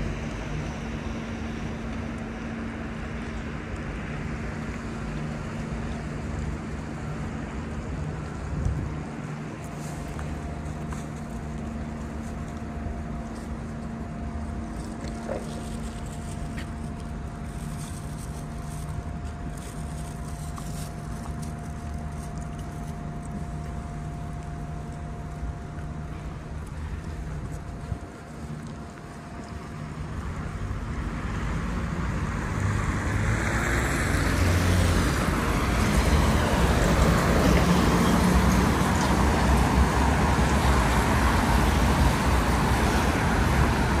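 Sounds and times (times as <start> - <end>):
thin steady whine: 0.0 - 32.9
traffic engines humming: 0.0 - 44.0.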